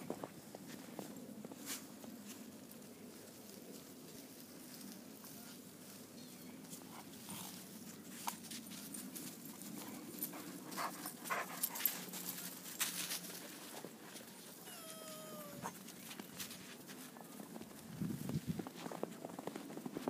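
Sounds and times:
dogs scuffling in snow: 0.3 - 20.0
dog yips: 14.6 - 15.8
puppy whining: 14.6 - 15.8.

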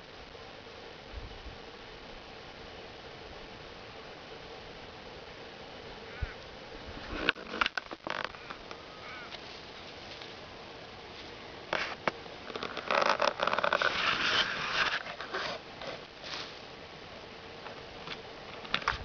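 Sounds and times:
claws scratching dry soil: 11.1 - 16.7.

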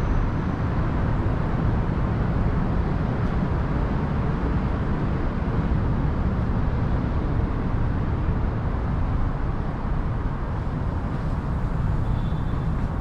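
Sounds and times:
distant city traffic rumble: 0.0 - 13.0.

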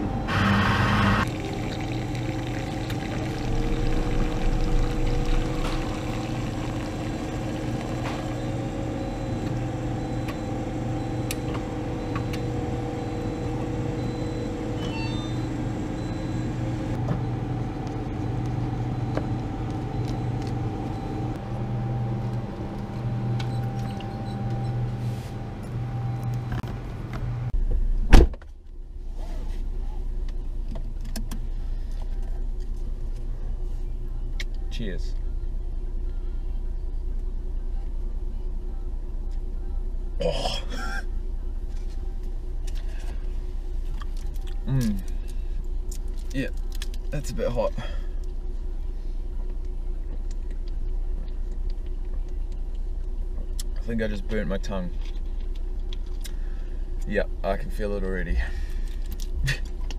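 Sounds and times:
machine hum: 0.0 - 27.6
loud thump: 28.1 - 28.4.

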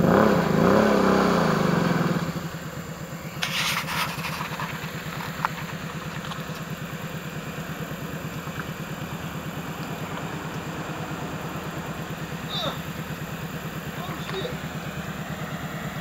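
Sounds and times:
atv engine idling: 0.0 - 16.0
brief rushing noise: 3.4 - 5.1.

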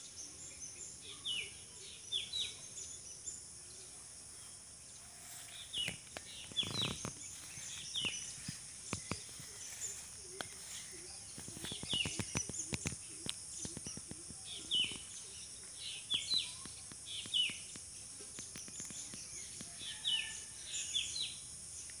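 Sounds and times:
bird chirping: 0.0 - 22.0
high insect drone: 0.0 - 22.0
sharp clicks and rustles: 5.7 - 15.1.

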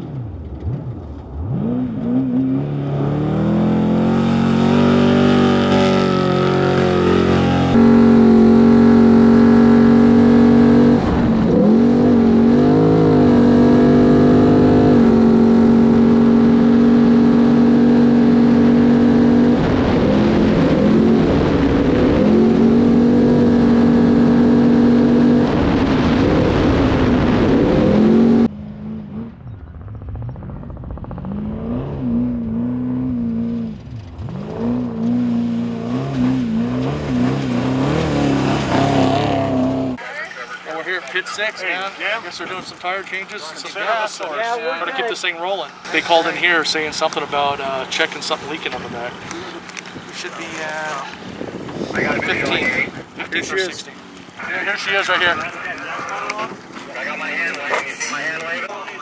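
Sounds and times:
engine rising and falling: 0.0 - 40.0
truck engine at high revs: 0.0 - 40.0.

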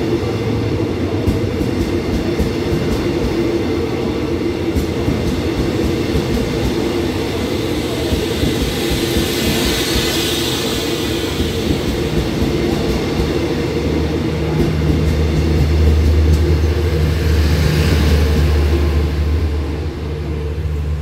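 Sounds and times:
train wheels on rails: 0.0 - 21.0.

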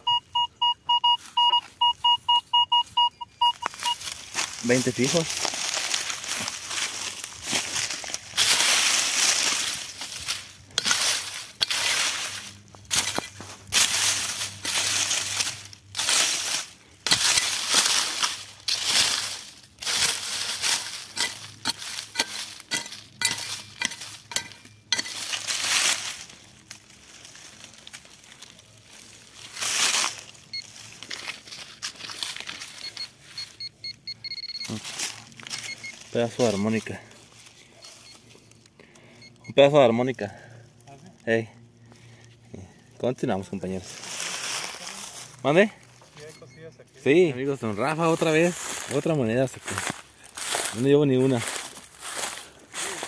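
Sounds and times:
faint electronic beeps: 0.0 - 4.2, 32.6 - 37.0, 37.7 - 40.0, 46.0 - 47.7
digging tool scraping soil: 3.8 - 26.3.

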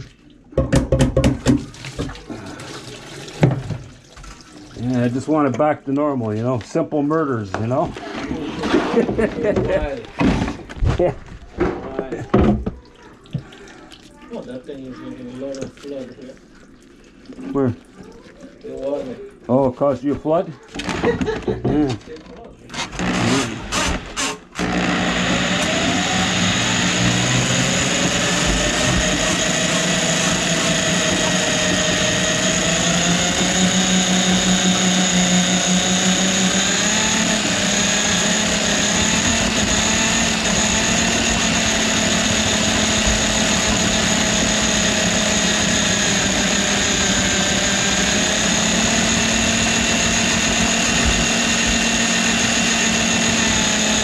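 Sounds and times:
drain cleaning machine motor whine: 22.8 - 54.0.

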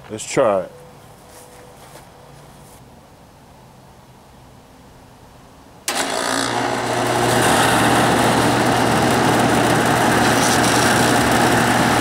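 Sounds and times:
condenser fan spinning: 5.9 - 12.0.

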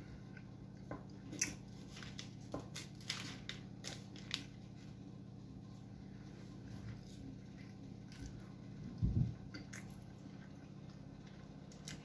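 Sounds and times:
faint low hum: 0.0 - 12.0
person chewing: 1.2 - 1.9.

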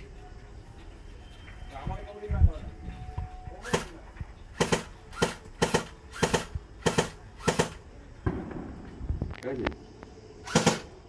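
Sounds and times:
airsoft pistol shots: 3.6 - 4.0, 4.6 - 8.7, 10.4 - 11.0.

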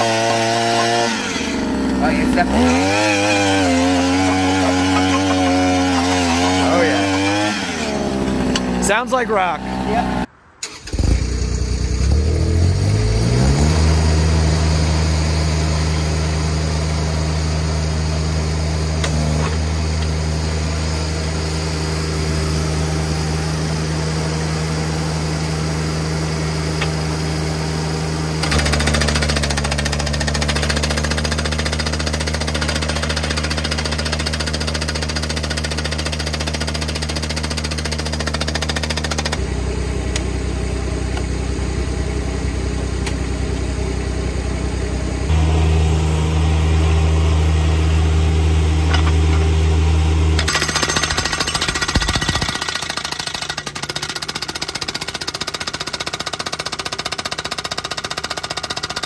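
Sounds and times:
hydraulic hammer pounding rock: 0.0 - 8.7, 28.4 - 39.4, 50.4 - 59.0
skid steer engine running: 0.0 - 9.0, 11.0 - 59.0.

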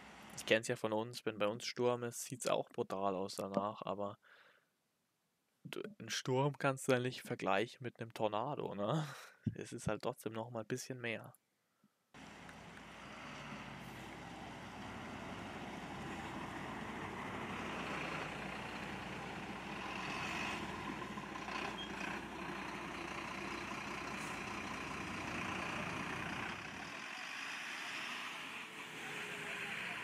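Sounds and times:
fire engines driving past: 12.2 - 30.0.

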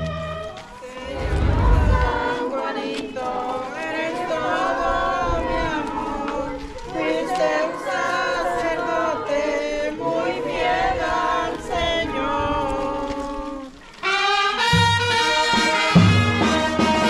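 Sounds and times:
deep bass notes: 0.0 - 2.3
brass band playing: 0.0 - 2.4, 14.0 - 17.0.

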